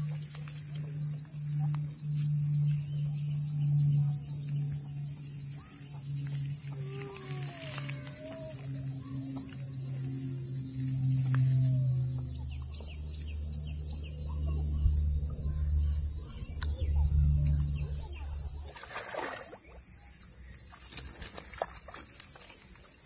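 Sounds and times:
low hum: 0:00.0 - 0:21.4
insects chirring: 0:00.0 - 0:23.0
fish splashing out of water: 0:18.5 - 0:19.9.

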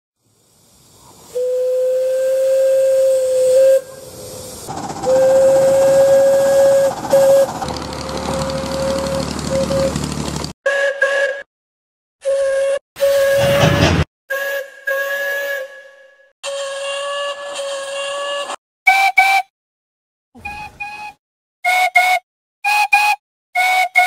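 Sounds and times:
steam hissing: 0:00.2 - 0:09.9
locomotive whistle hoots: 0:01.3 - 0:04.1, 0:05.0 - 0:10.0, 0:10.6 - 0:11.5, 0:12.2 - 0:19.5, 0:20.4 - 0:24.0.

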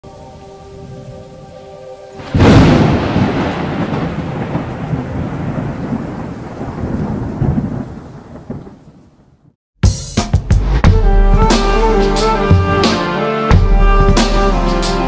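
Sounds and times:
thunderclap with rolling rumble: 0:02.2 - 0:09.6.

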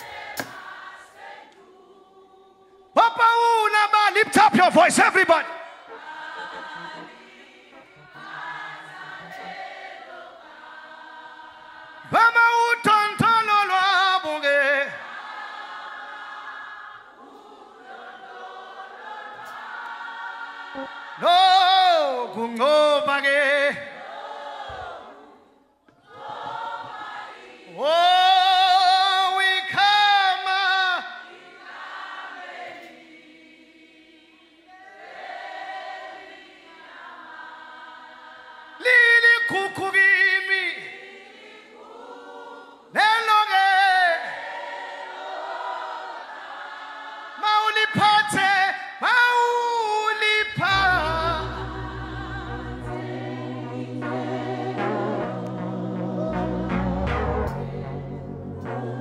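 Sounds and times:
congregation singing: 0:00.0 - 0:59.0
strong solo voice with vibrato: 0:50.5 - 0:59.0.

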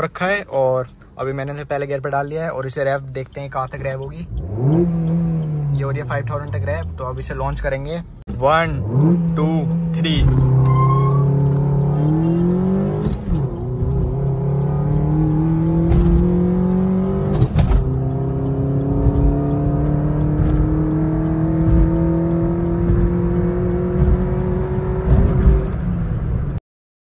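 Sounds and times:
gear change click: 0:02.7 - 0:08.0, 0:12.9 - 0:25.9
car engine accelerating: 0:03.4 - 0:26.6.

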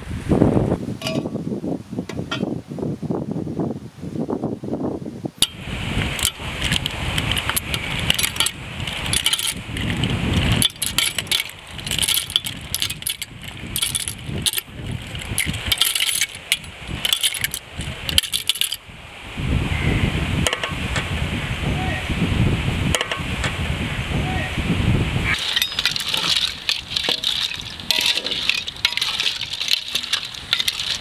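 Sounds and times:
clam shells clinking: 0:06.2 - 0:18.8, 0:25.4 - 0:31.0.

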